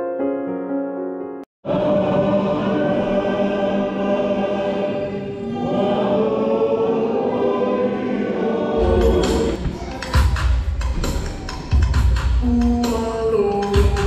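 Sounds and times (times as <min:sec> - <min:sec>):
choir singing in harmony: 0:01.6 - 0:12.4.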